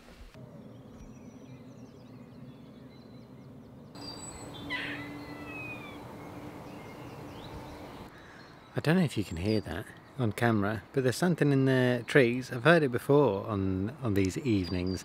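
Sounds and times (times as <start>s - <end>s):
small birds chirping: 0.5s - 15.0s
cat-like mewing animal call: 4.7s - 6.0s.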